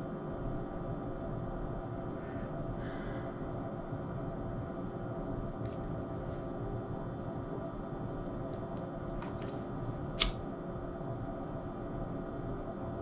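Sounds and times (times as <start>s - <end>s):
steady low hum: 0.0s - 13.0s
clicks: 10.2s - 10.4s.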